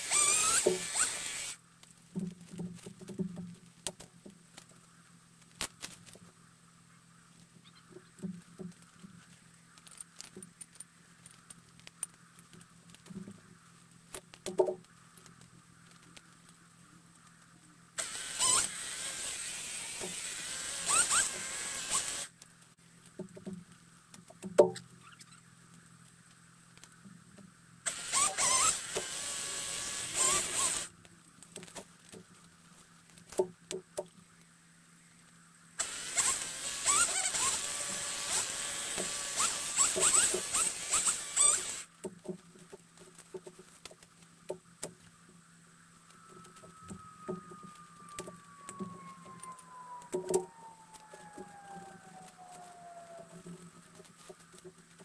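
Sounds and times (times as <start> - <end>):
chainsaw cutting: 0.0 - 1.6, 18.0 - 22.3, 27.8 - 30.9, 35.8 - 41.9
faint clicks and knocks: 22.4 - 25.0.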